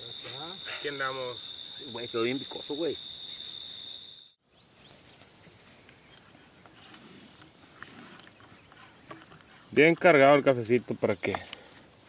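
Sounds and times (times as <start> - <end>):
crickets trilling: 0.0 - 5.4
faint rural outdoor ambience: 0.0 - 12.0.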